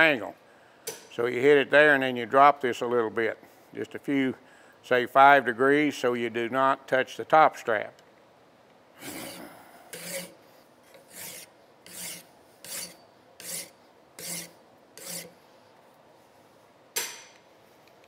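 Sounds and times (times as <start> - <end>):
file rasping on metal: 9.0 - 15.4.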